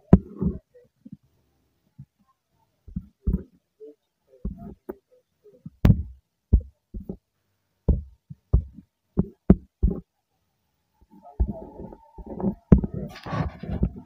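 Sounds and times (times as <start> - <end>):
stylus tapping on touchscreen: 2.9 - 3.5, 4.4 - 5.0, 7.9 - 10.1, 11.4 - 14.0.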